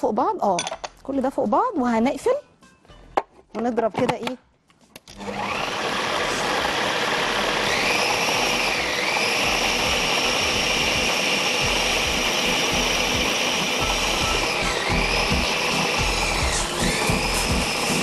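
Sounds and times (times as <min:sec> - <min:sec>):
food processor motor whine: 0:05.1 - 0:18.0.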